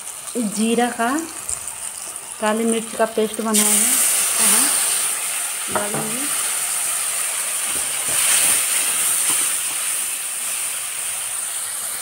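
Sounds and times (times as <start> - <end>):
paste sizzling in hot oil: 0.0 - 12.0
spatula knocking: 5.7 - 6.3.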